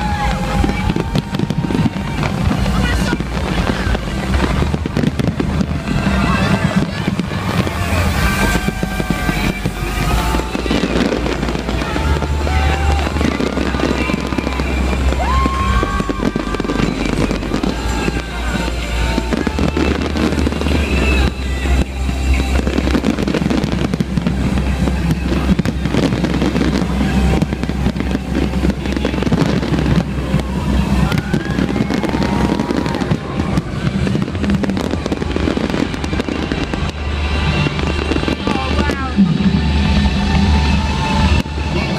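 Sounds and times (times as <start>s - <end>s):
bass-heavy music: 0.0s - 41.9s
fireworks crackling and banging: 0.0s - 41.9s.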